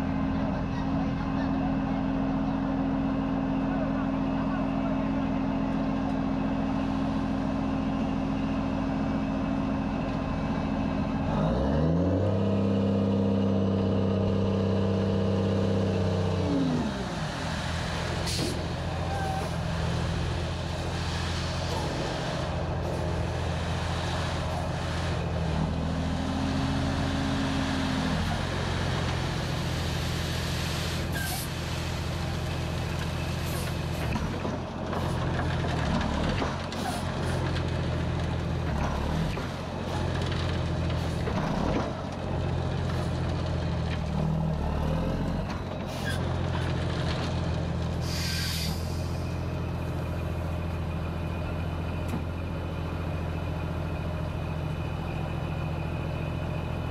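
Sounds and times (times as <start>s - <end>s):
truck diesel engine running: 0.0s - 56.9s.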